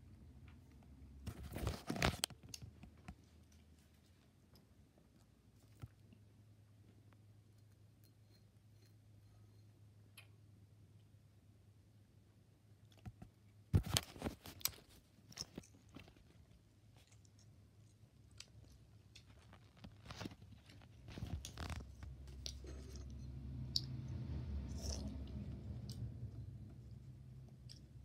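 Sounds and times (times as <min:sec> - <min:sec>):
chewing and crunching: 0:14.4 - 0:24.1.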